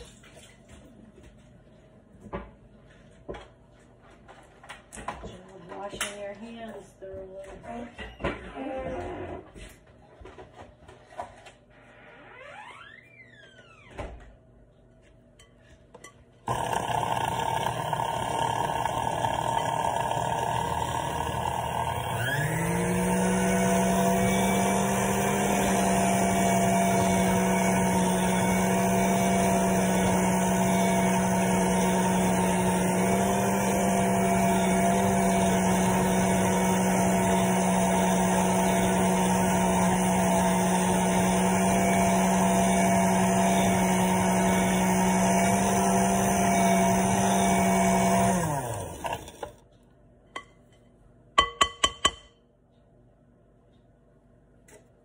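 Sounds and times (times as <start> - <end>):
kitchen appliance motor humming: 16.5 - 49.6.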